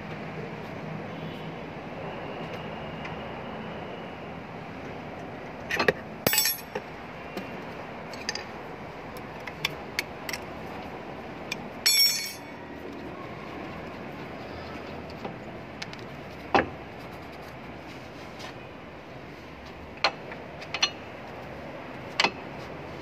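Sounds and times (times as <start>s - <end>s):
steady background hum: 2.6s - 23.0s
metal tools clinking: 6.2s - 6.8s, 11.8s - 12.6s
ringing metal clank: 6.3s - 6.8s, 11.8s - 12.5s.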